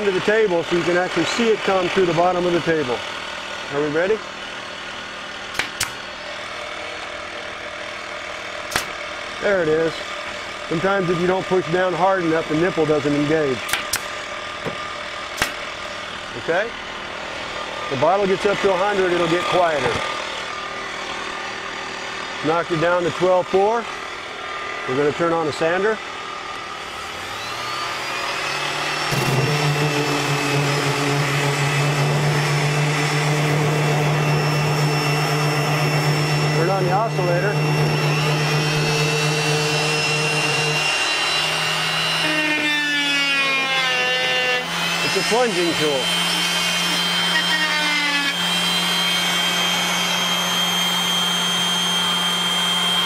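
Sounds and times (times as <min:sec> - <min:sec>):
air compressor running: 0:00.0 - 0:53.0
orbital sander whine: 0:00.0 - 0:53.0
multi-tool cutting into board: 0:05.5 - 0:06.1, 0:08.6 - 0:09.1, 0:13.6 - 0:16.0, 0:26.9 - 0:53.0.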